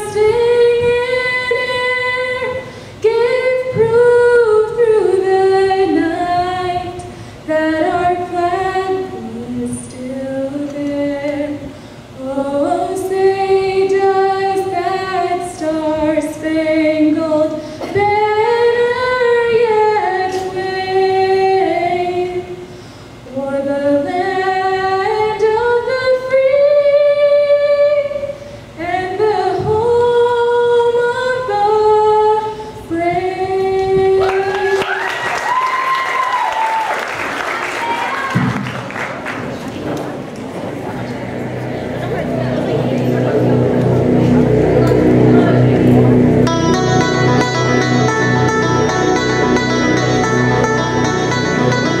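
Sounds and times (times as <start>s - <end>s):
woman singing unaccompanied: 0.0s - 22.6s, 23.3s - 34.8s
applause: 34.2s - 39.9s.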